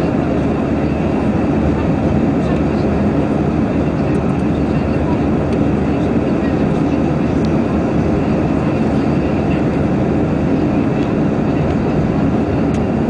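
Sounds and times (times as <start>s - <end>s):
airplane cabin engine rumble: 0.0s - 13.0s.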